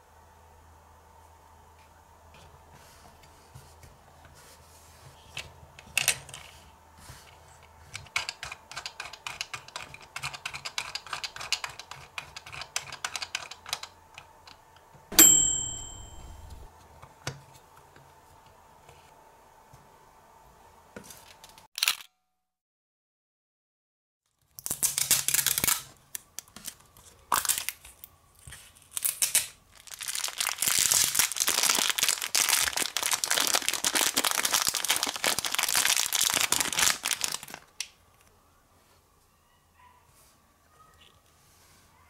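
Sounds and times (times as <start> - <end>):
bell-like ding: 15.1 - 16.7.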